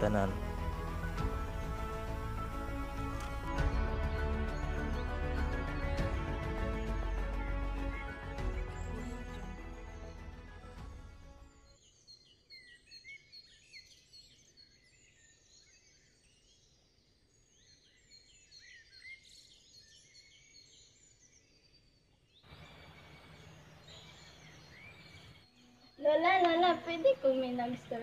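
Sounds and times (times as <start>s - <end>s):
outdoor hiss: 0.0s - 3.5s, 22.5s - 25.4s
small birds chirping: 11.6s - 28.0s.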